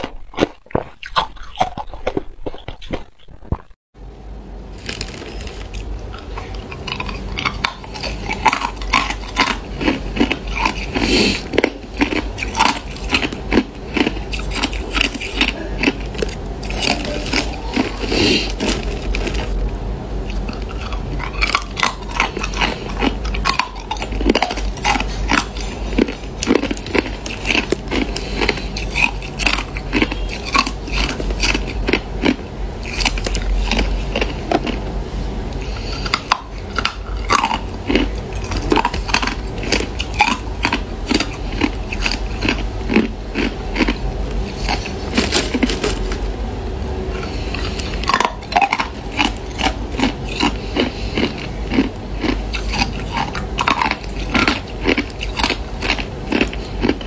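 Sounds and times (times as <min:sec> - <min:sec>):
plastic bag crinkling: 0:04.7 - 0:05.9.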